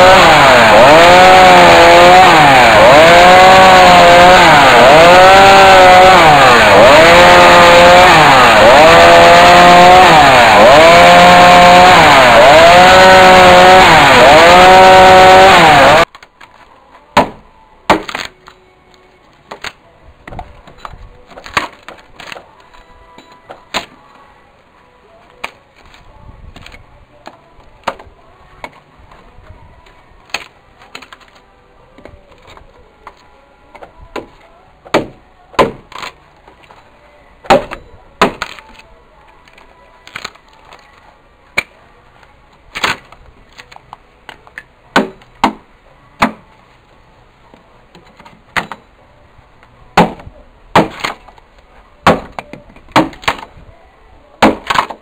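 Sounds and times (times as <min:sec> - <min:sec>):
axe chopping into a log: 0:17.2 - 0:18.3, 0:34.9 - 0:36.2, 0:37.4 - 0:38.7, 0:42.7 - 0:43.1, 0:44.3 - 0:46.4, 0:48.5 - 0:48.8, 0:50.0 - 0:51.3, 0:52.0 - 0:53.5, 0:54.4 - 0:55.0.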